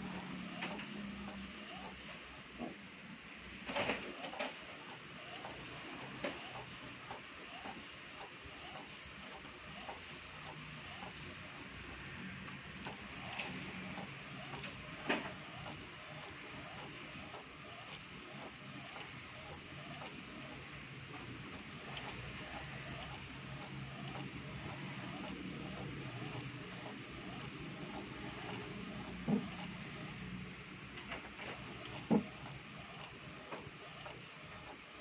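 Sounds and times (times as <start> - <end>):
printer ticking: 0.0 - 2.3, 12.8 - 30.1, 31.0 - 35.0
inkjet printer printing: 0.0 - 2.8, 3.6 - 35.0
sharp printer clicks: 0.4 - 2.0, 3.7 - 11.2, 12.8 - 20.6, 21.2 - 29.8, 31.0 - 34.9.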